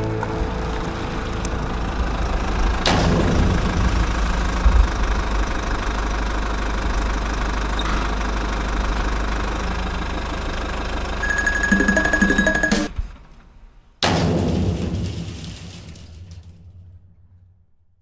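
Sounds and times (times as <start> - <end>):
low engine rumble: 0.0 - 11.7.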